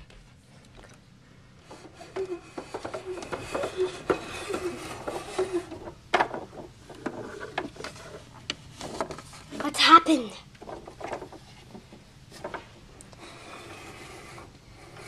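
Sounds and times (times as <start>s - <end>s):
plastic dolls rustling and clattering: 1.6s - 15.0s.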